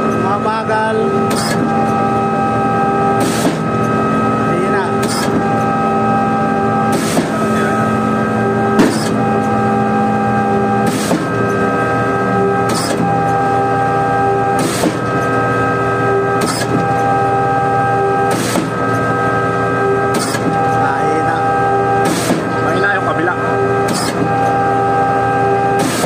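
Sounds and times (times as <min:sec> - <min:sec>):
concrete pump mechanical drone: 0:00.0 - 0:26.0.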